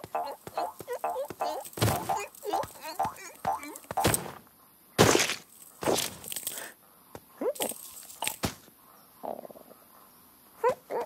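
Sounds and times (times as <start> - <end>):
quick cartoon patter: 0.0 - 4.0.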